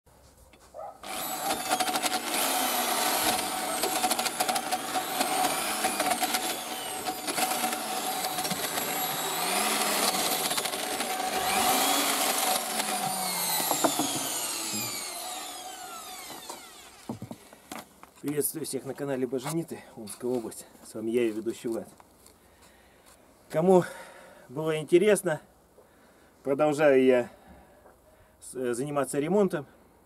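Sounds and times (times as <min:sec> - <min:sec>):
power tool motor whine: 0:01.0 - 0:17.4
rattles and clicks: 0:03.2 - 0:14.6.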